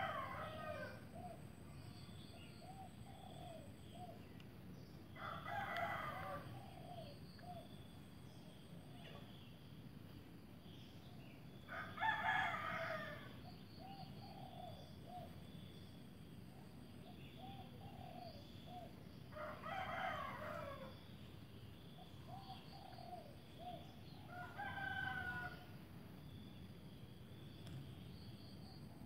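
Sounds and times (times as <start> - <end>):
rooster crowing: 0.0 - 1.0, 5.2 - 6.6, 11.7 - 13.4, 19.4 - 21.0, 24.3 - 25.7.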